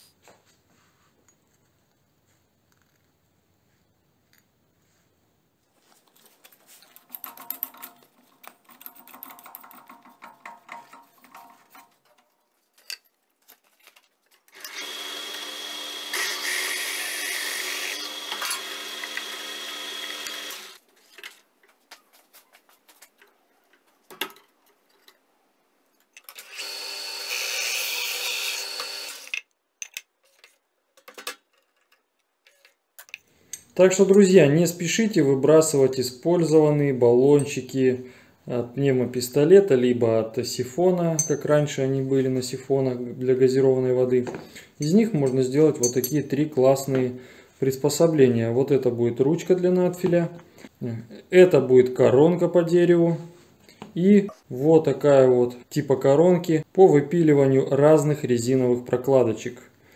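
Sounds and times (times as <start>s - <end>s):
scraping and rustling: 5.7s - 14.5s, 20.8s - 25.2s
drill boring into wood: 14.6s - 20.8s, 26.4s - 29.3s.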